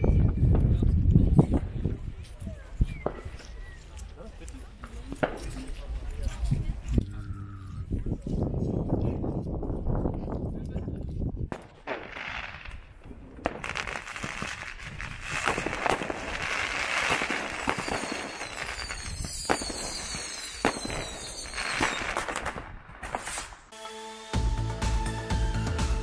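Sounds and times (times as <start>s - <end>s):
fireworks bangs and crackling: 0.0s - 6.9s, 11.5s - 23.7s
sharp firework cracks: 11.5s - 23.7s
high falling whistles: 17.6s - 22.2s.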